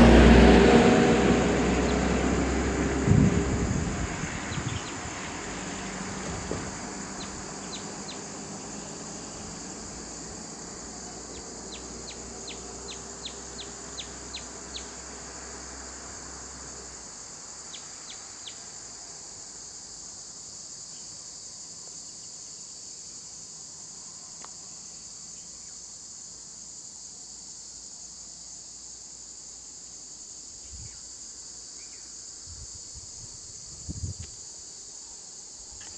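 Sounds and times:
low bumps: 0.0s - 8.2s
insects chirring: 0.0s - 35.9s.

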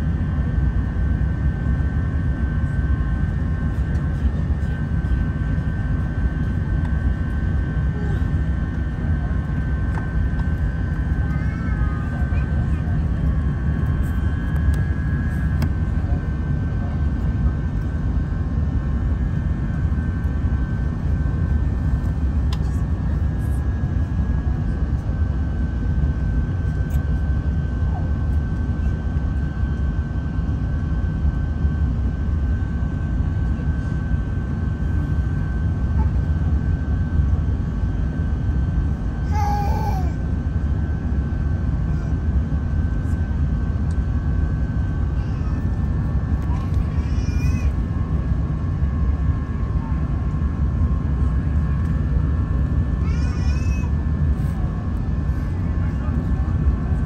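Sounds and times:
constant high whine: 0.0s - 57.0s
low rumble of engines and airflow: 0.0s - 57.0s.

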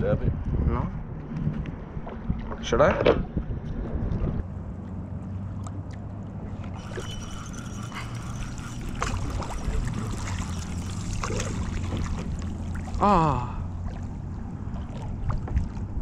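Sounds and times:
wind rumbling on microphone: 0.0s - 5.5s, 6.3s - 16.0s
water lapping against kayak: 6.6s - 16.0s.

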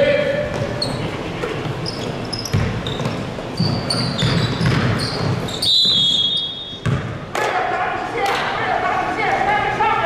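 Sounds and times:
sneakers squeaking: 0.3s - 7.3s
basketball bouncing on hardwood: 2.5s - 5.4s
referee's whistle: 4.0s - 6.8s.

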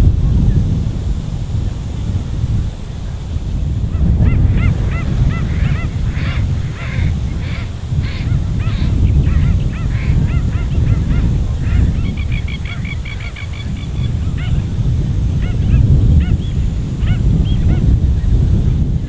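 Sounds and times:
wading birds calling: 3.9s - 18.5s.

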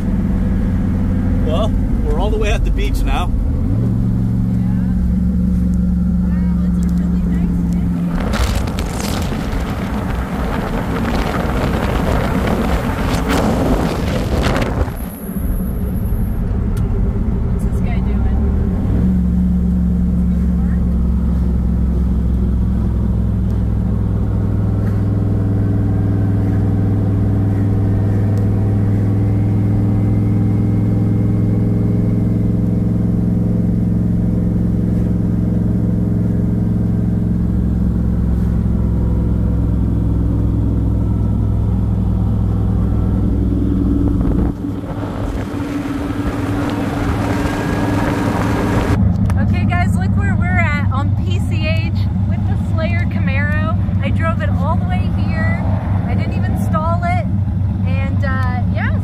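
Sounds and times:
car engine droning: 0.0s - 59.0s
road noise: 0.0s - 59.0s
wind noise: 7.6s - 18.0s, 42.0s - 50.2s.

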